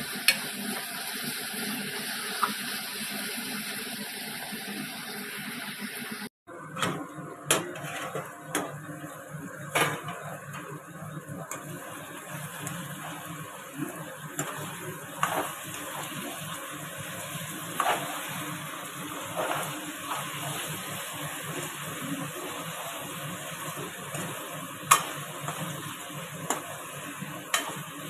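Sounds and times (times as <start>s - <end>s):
chicken sizzling in a pan: 0.0s - 6.3s, 8.0s - 28.0s
ladle stirring and scraping: 7.6s - 8.3s, 12.3s - 26.8s.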